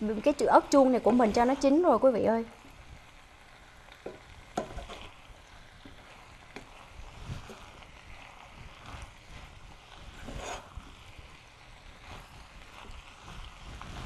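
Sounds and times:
low hiss: 0:00.0 - 0:14.0
spatula scraping pot: 0:04.6 - 0:05.2, 0:05.8 - 0:14.0.

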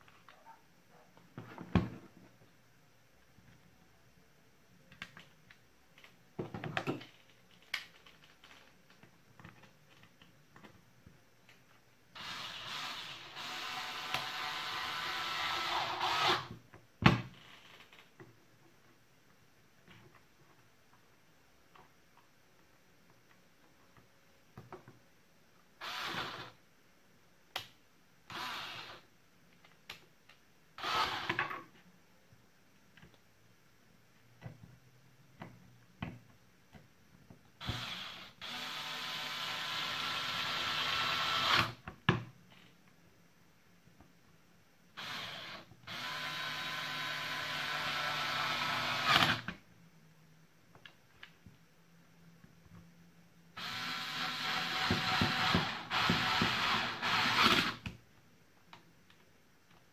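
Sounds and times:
cordless drill motor whirring: 0:12.2 - 0:16.5, 0:25.8 - 0:26.5, 0:28.3 - 0:29.0, 0:30.8 - 0:31.4, 0:37.6 - 0:41.8, 0:45.0 - 0:49.5, 0:53.6 - 0:57.8
electric screwdriver running: 0:45.0 - 0:49.5, 0:53.6 - 0:57.8.

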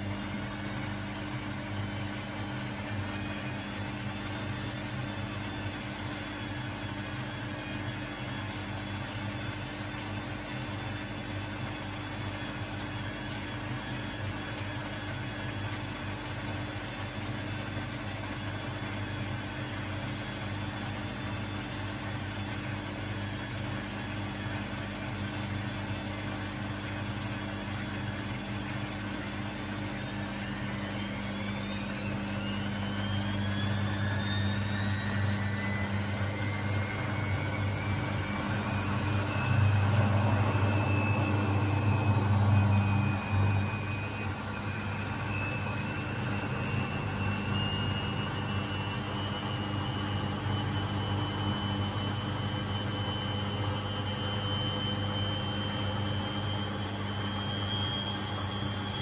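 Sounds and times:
washing machine hum: 0:00.0 - 0:59.0
drum motor whining: 0:28.7 - 0:59.0.

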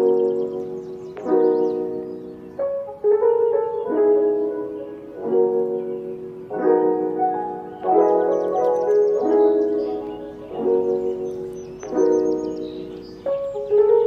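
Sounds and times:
lo-fi keyboard chords music: 0:00.0 - 0:14.0.

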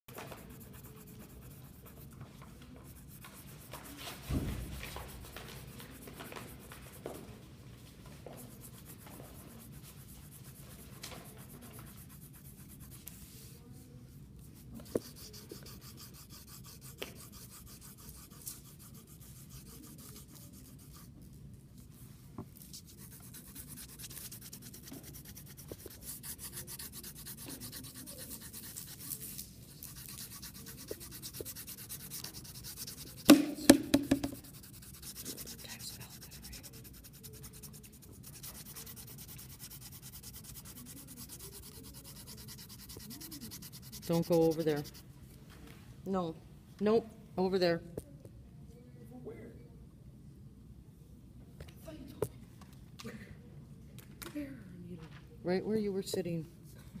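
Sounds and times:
pencil scratching on paper: 0:00.1 - 0:07.2, 0:08.3 - 0:13.8, 0:14.4 - 0:21.3, 0:22.6 - 0:45.0.

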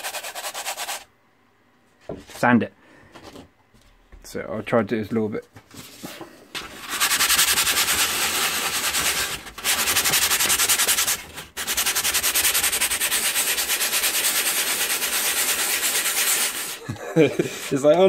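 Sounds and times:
sandpaper rubbing on canvas: 0:00.0 - 0:01.0, 0:06.6 - 0:18.0.

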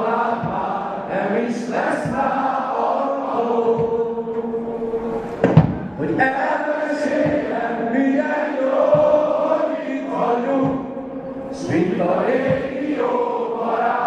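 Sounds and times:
crowd singing in unison: 0:00.0 - 0:14.0
low thumps: 0:05.3 - 0:06.1.

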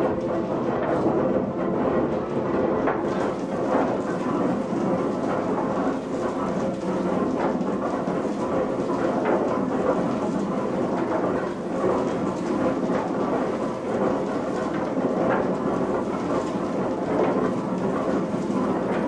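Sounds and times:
machinery rumble and clatter: 0:00.0 - 0:19.0.

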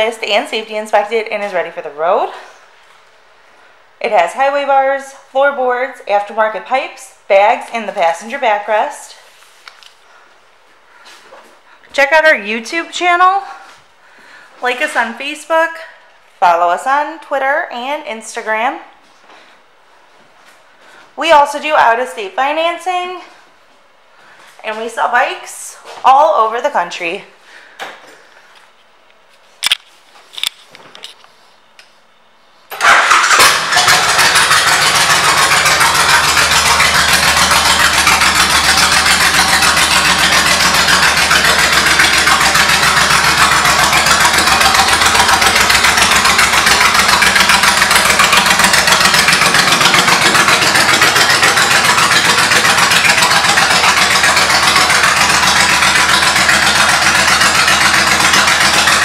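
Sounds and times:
motorcycle engine starting and idling: 0:32.7 - 0:59.0.

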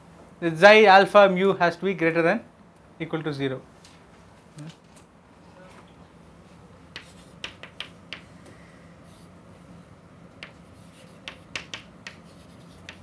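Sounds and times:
chalk tapping on chalkboard: 0:06.9 - 0:08.3, 0:10.4 - 0:13.0.

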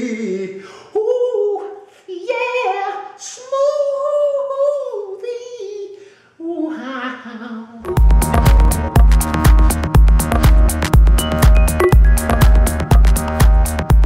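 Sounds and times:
breaths between phrases: 0:00.0 - 0:01.0, 0:01.7 - 0:02.2, 0:05.9 - 0:06.5.

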